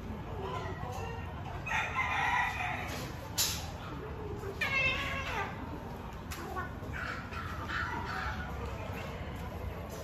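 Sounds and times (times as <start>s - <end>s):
cat yowling: 4.6s - 5.6s.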